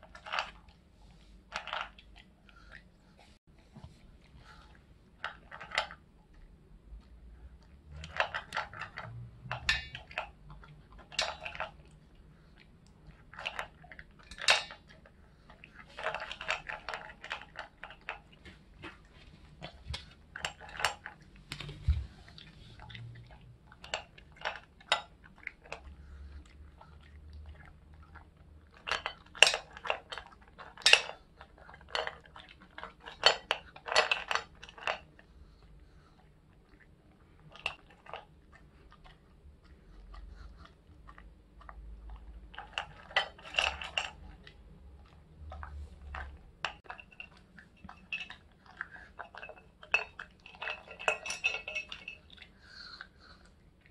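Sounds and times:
dog crunching dry kibble: 1.4s - 2.8s, 7.9s - 36.0s, 36.6s - 53.4s
kibble clinking against metal bowl: 46.1s - 52.5s.

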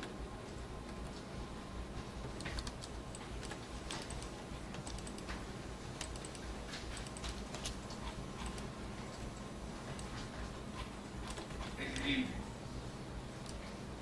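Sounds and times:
steady low hum: 0.0s - 14.0s
computer keyboard clicks: 2.3s - 5.4s, 6.0s - 8.7s, 11.2s - 12.1s, 13.4s - 13.7s.

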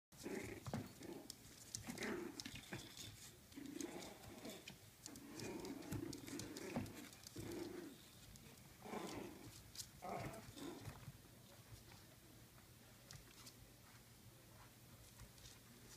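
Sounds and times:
paws and toys pattering on floor: 0.2s - 15.9s
puppies growling and yipping: 1.8s - 8.0s.

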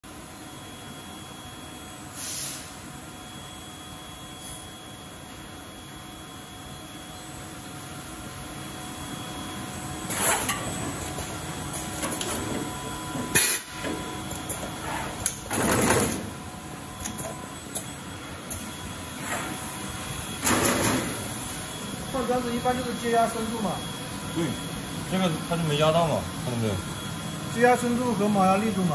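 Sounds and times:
machine mechanical hum: 0.0s - 28.9s
short sharp hisses: 2.2s - 2.8s.

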